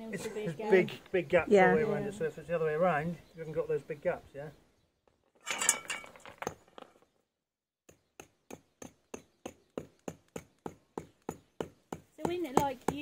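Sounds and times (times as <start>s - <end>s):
stones clinking and scraping: 5.4s - 7.1s
hammer tapping cobblestones: 7.9s - 13.0s.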